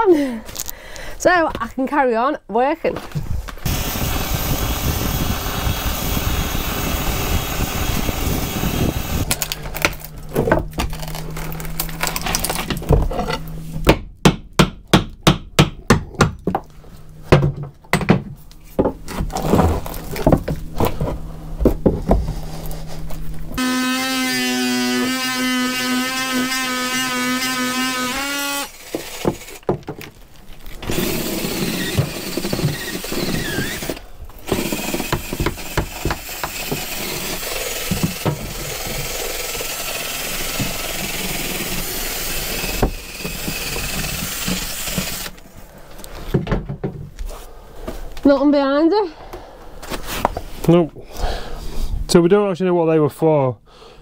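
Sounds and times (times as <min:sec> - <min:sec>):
power tool running: 0:03.6 - 0:13.7, 0:23.4 - 0:30.0, 0:30.7 - 0:45.4
belt sander humming: 0:03.6 - 0:13.8, 0:19.9 - 0:29.8, 0:30.7 - 0:45.5.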